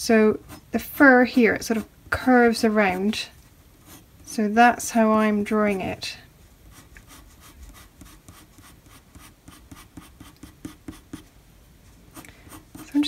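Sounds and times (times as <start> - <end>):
pencil scratching on paper: 0.3 - 0.8, 2.6 - 4.4, 6.7 - 11.3, 12.1 - 13.0.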